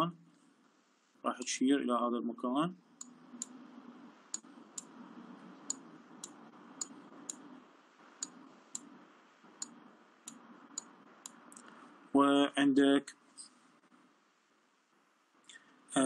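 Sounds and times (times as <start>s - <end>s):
faint low hum: 0.0s - 16.0s
computer mouse clicks: 5.6s - 7.5s.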